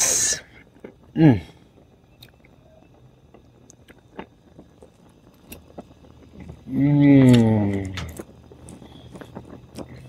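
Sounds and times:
man humming: 1.2 - 1.5.

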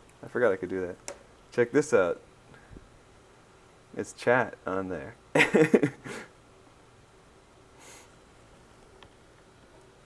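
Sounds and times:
faint breathy hiss: 2.4 - 3.6, 7.7 - 8.6.

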